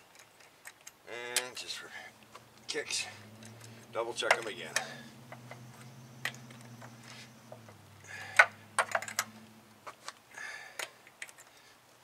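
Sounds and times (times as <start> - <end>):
wrench clicking on lug nuts: 8.3 - 9.3.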